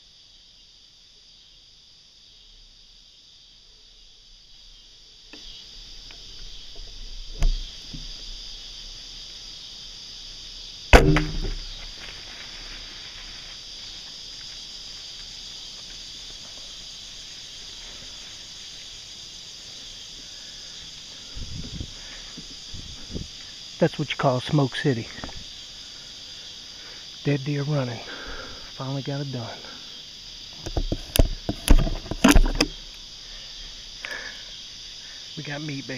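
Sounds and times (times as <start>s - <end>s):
crickets chirping: 0.0s - 35.9s
bow string snap: 10.9s - 12.2s.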